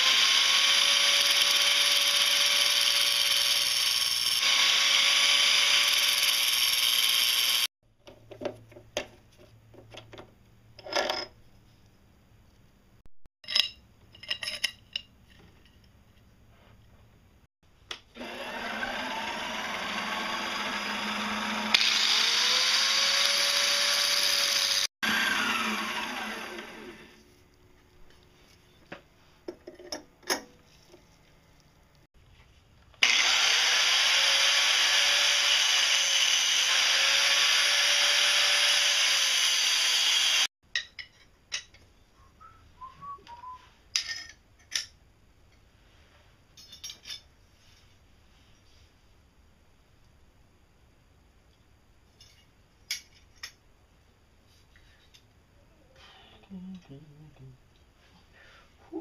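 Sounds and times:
angle grinder grinding steel: 0.0 - 7.7, 18.2 - 27.3, 33.0 - 40.5.

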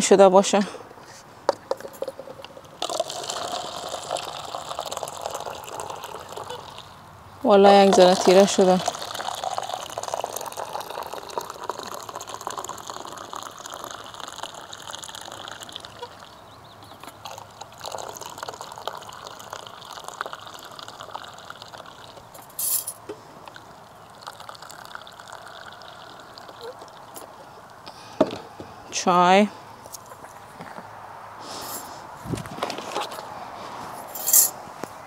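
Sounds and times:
tea pouring into a cup: 2.0 - 7.0, 7.6 - 27.7.

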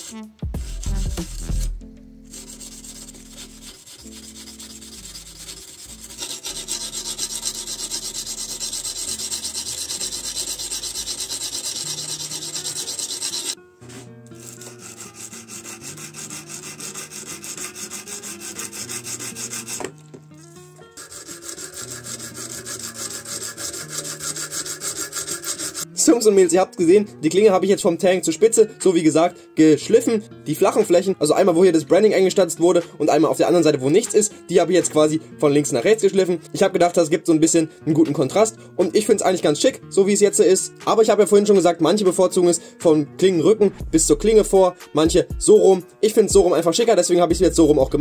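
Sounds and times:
sandpaper scraping steel blade: 0.0 - 20.0, 20.9 - 25.9
background music with low notes: 0.0 - 48.0.

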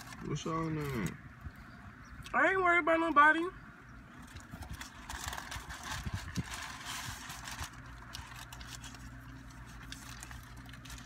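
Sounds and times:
paper wrapper crinkling: 0.0 - 1.2, 4.2 - 11.0
low car hum: 0.0 - 11.0
chewing: 7.8 - 11.0.

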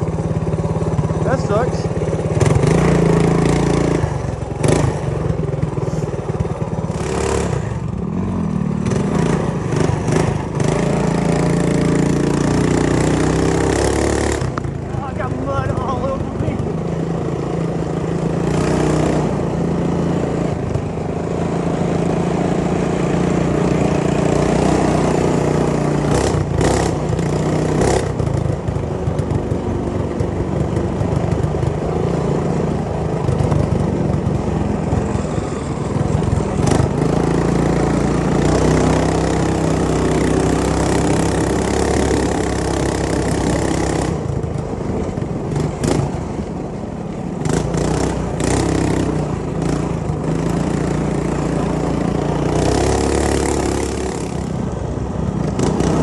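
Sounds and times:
minibike engine running: 0.0 - 56.0.

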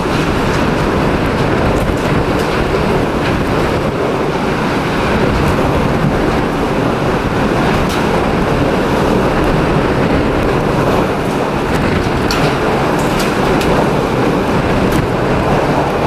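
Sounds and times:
rain: 0.0 - 16.0
strong wind rushing: 0.0 - 16.0
wind buffeting microphone: 0.0 - 16.0.

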